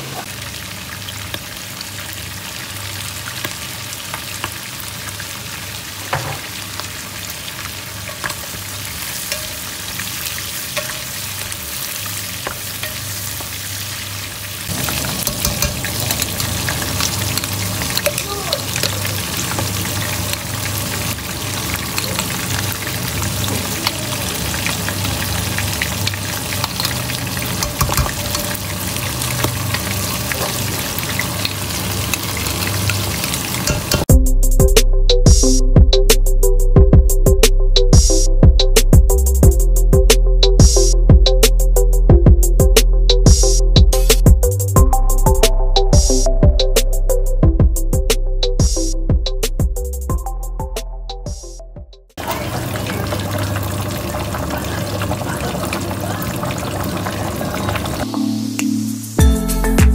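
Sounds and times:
food sizzling in a pot: 0.0 - 34.1, 52.1 - 59.2.

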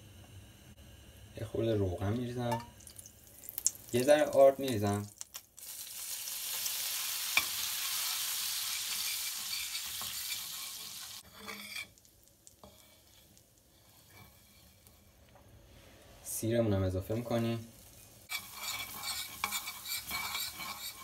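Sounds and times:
roux sizzling in a frying pan: 1.0 - 21.0
metal spoon stirring: 8.7 - 12.0, 12.6 - 15.2, 18.3 - 21.0.

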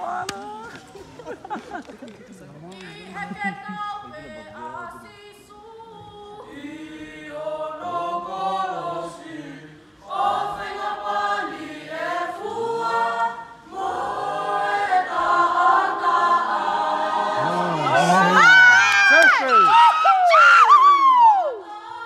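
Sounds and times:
mixed choir singing a cappella: 2.9 - 18.7, 21.4 - 22.0.

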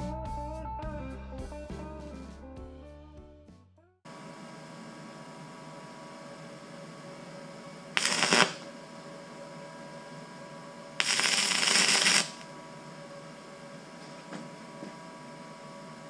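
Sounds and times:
faint steady hum: 4.1 - 16.0
welding arc crackling: 8.0 - 8.7, 11.0 - 12.5.

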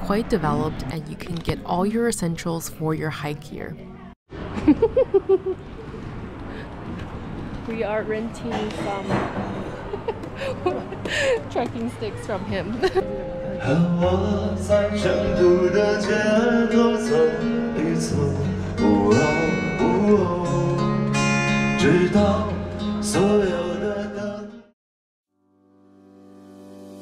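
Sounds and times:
man singing: 13.6 - 21.0, 21.7 - 24.7.

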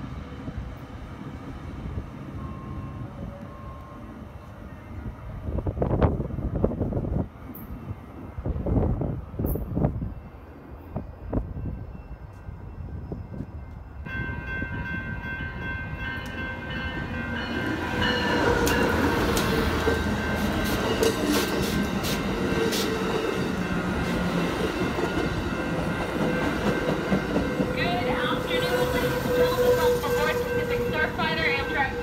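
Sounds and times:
passenger train rumbling past: 0.0 - 32.0
train wheels clacking: 17.3 - 32.0.

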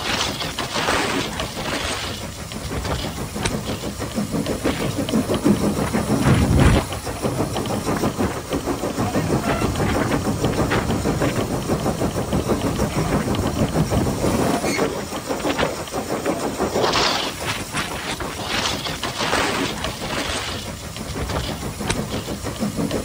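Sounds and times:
steam hissing: 0.0 - 23.0
steam locomotive exhaust beats: 0.0 - 23.0.

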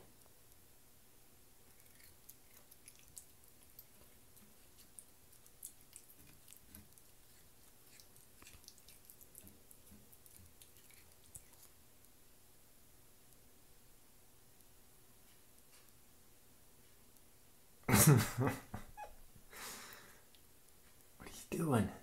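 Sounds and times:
cat chewing clicks: 1.7 - 12.1.

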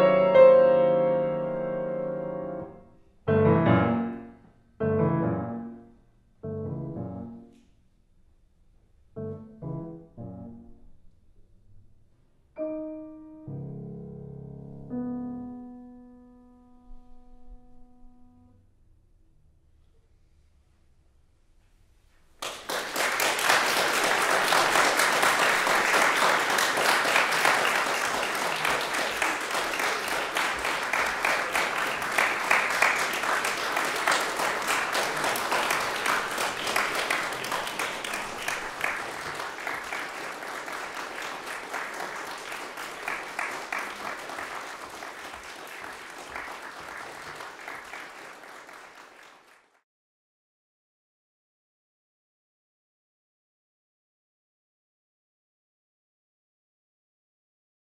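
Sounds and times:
audience applauding: 22.4 - 49.8.

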